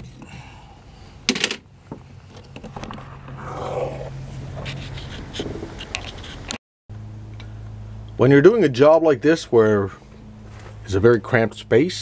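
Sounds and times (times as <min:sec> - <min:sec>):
rustling and scraping: 0:02.2 - 0:06.6, 0:10.1 - 0:10.9.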